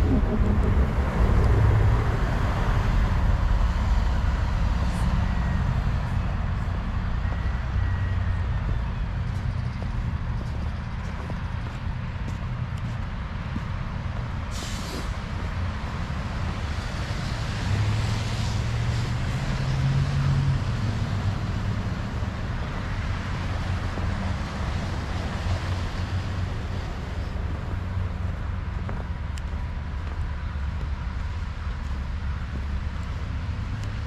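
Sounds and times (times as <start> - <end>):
bus engine drone: 0.0 - 34.0
road traffic: 0.0 - 34.0
air brakes hiss: 14.5 - 15.2.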